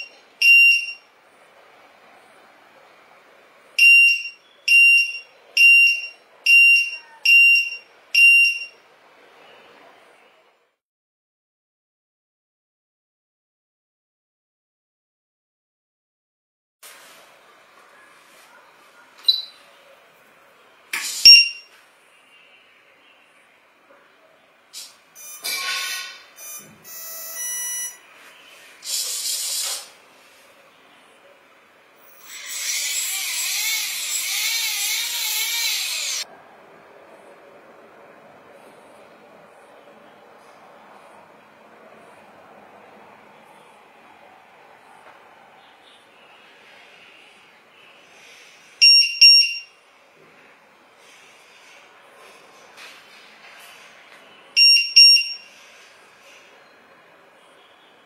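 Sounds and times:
high-pitched buzzer beeps: 0.0 - 1.0, 3.8 - 8.7, 21.3 - 21.7, 25.2 - 25.6, 26.4 - 28.0, 48.8 - 49.7, 54.6 - 55.5
electronic beeps: 19.3 - 19.6, 21.3 - 21.7, 25.2 - 25.5, 26.4 - 28.0, 48.8 - 49.7, 54.6 - 55.5
faint hiss: 28.3 - 30.8.

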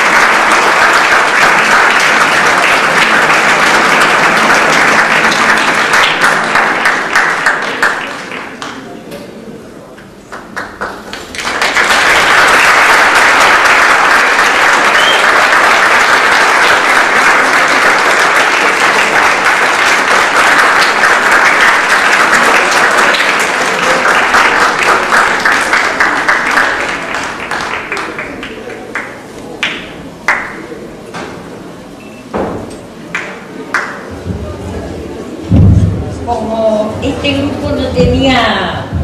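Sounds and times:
audience applause: 0.0 - 9.0, 10.2 - 30.7.

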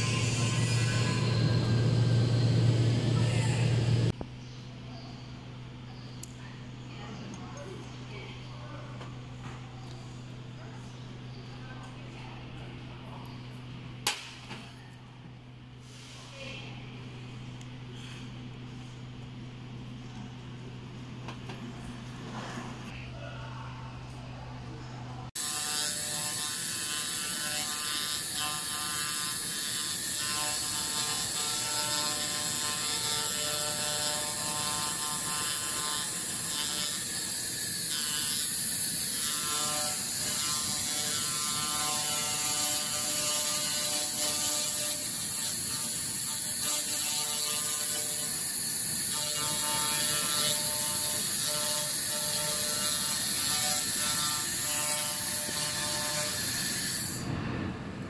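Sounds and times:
laser cleaner crackling buzz: 25.4 - 57.2.

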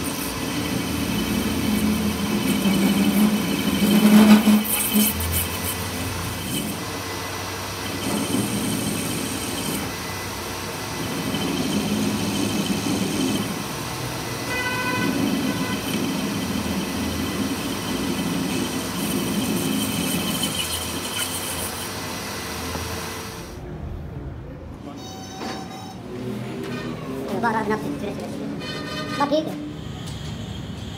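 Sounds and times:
metal lathe drone: 0.0 - 23.6
high ringing tone: 25.0 - 26.1.

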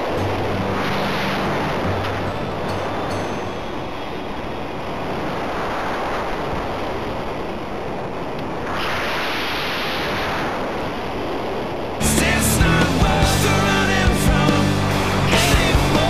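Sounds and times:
wind hiss over camera: 0.0 - 12.0.

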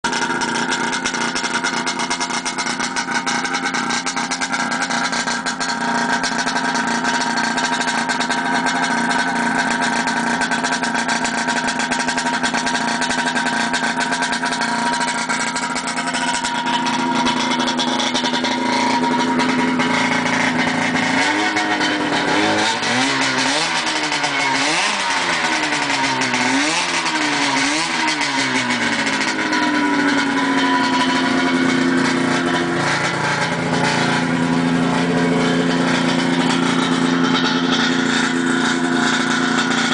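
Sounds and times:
snowmobile engine idling and revving: 0.0 - 39.9.

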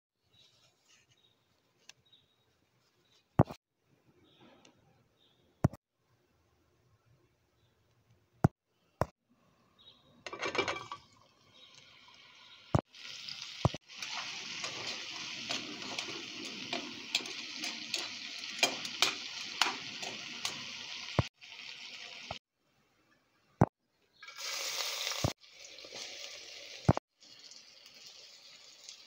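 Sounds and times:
food sizzling in hot oil: 10.4 - 22.4, 24.2 - 29.0.

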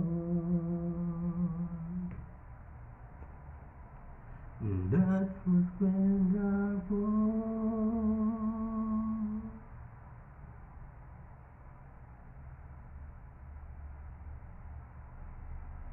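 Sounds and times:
man singing unaccompanied: 0.0 - 2.2, 4.6 - 9.6.

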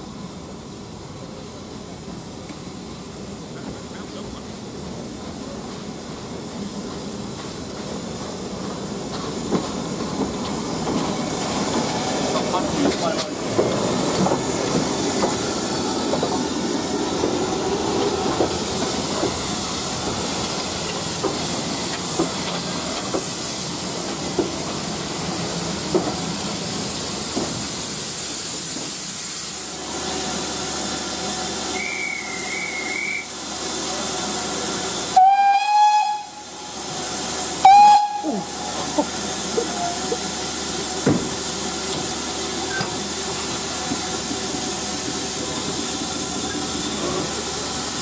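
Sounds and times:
steam locomotive hissing: 0.0 - 48.0
steam whistle: 31.7 - 33.4, 35.1 - 36.7, 37.6 - 38.7.

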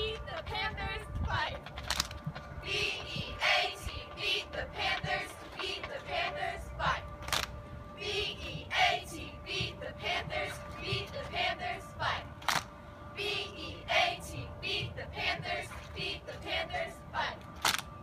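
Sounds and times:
cheerleaders chanting in unison: 2.6 - 7.0, 8.0 - 12.3, 13.2 - 17.4.

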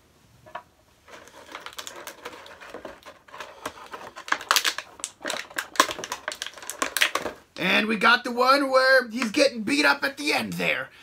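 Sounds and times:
plastic packaging crinkling: 1.0 - 7.5.

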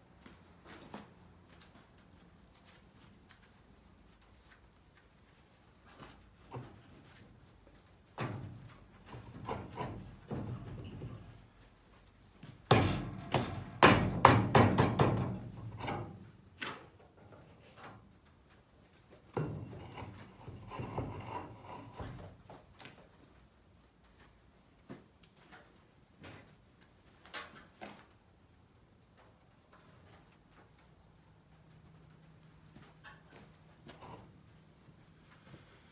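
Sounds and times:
wagon wheel knocking and clattering: 12.5 - 16.2.

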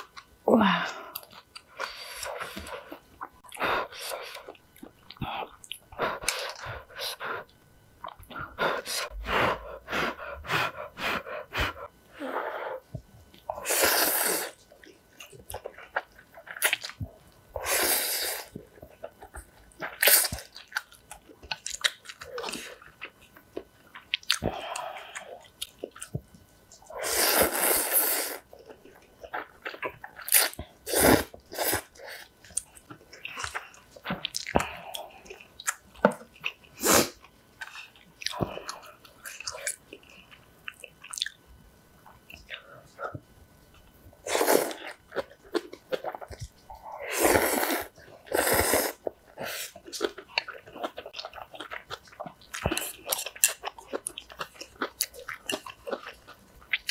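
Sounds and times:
person slurping noodles: 13.6 - 14.6, 17.6 - 18.5, 27.0 - 28.4, 44.2 - 44.8, 47.0 - 49.7
wet chewing: 47.3 - 56.9.

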